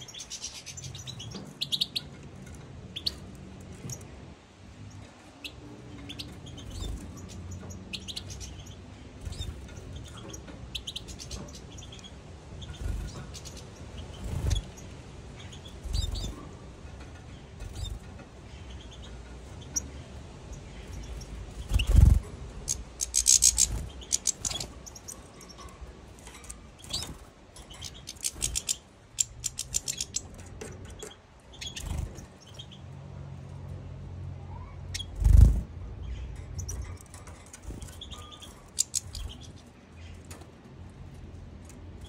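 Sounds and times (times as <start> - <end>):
finches chirping: 0.0 - 2.3, 2.9 - 4.1, 4.8 - 16.6, 17.3 - 32.9, 34.5 - 40.3
rapid bird twittering: 4.9 - 16.6, 17.6 - 32.8, 34.6 - 40.2.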